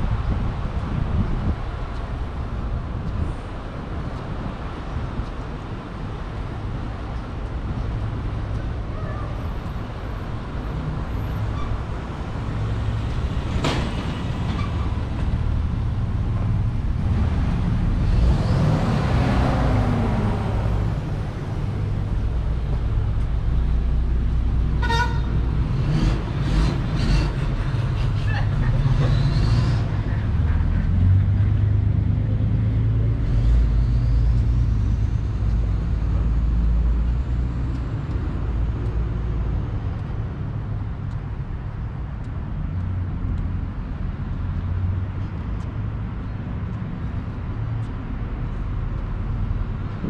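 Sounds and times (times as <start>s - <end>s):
traffic rumble: 0.0s - 50.0s
vehicle passing by: 12.0s - 24.6s
car horn toot: 24.8s - 25.3s.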